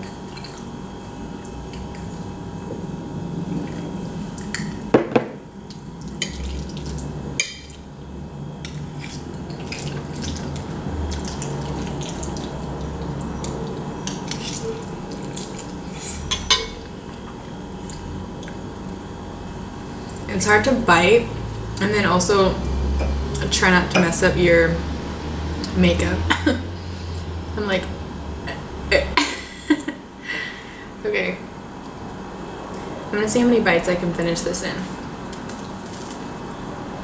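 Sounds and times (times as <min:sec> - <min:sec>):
eating sounds: 0:08.7 - 0:16.3.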